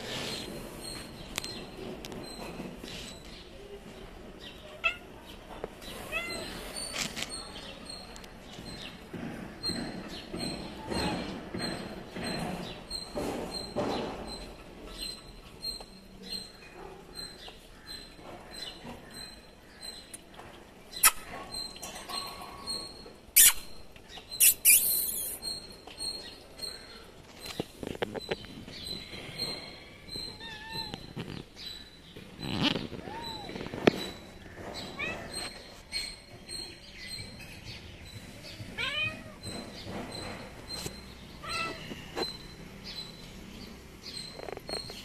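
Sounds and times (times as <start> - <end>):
sharp scratching rustles: 0.0 - 3.5, 5.8 - 9.0, 26.7 - 37.2
cat meowing: 38.8 - 39.4.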